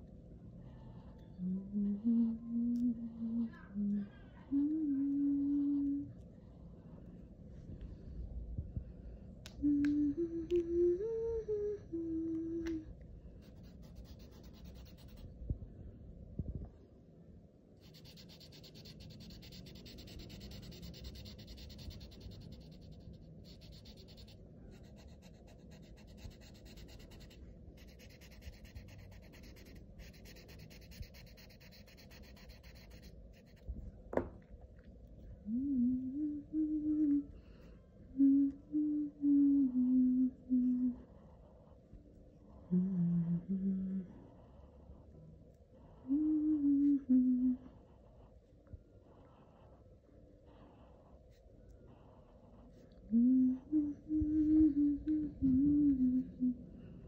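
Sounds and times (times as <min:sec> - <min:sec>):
person humming slow tune: 0:00.9 - 0:06.2, 0:09.5 - 0:13.0, 0:35.4 - 0:41.3, 0:42.5 - 0:44.6, 0:45.8 - 0:48.0, 0:53.0 - 0:57.0
marker scratching on paper: 0:13.4 - 0:15.3, 0:17.8 - 0:33.7.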